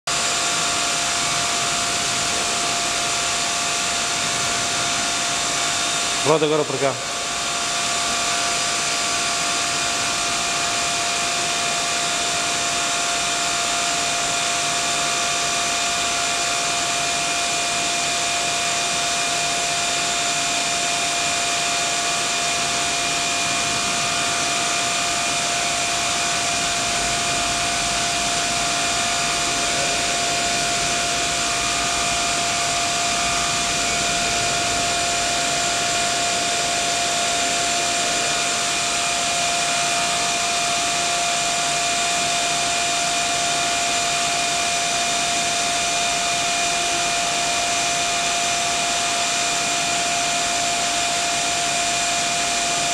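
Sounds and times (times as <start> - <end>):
steady machine whir: 0.1 - 52.9
whining tones: 23.0 - 39.7.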